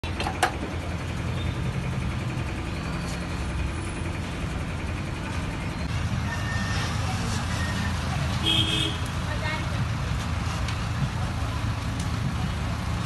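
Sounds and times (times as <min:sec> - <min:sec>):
scooter engine running: 0:00.0 - 0:10.0.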